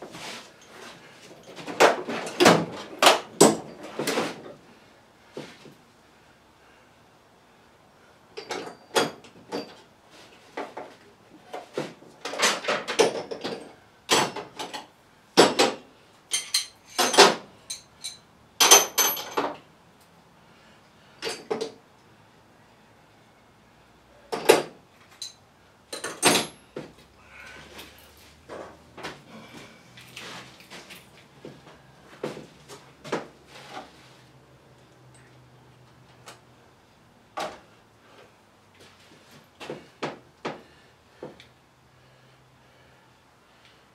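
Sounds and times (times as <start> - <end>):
tool chest drawers opening and shutting: 1.4 - 4.6, 11.6 - 15.8, 16.4 - 17.5, 26.0 - 26.6
steel tools clanking: 16.3 - 19.4.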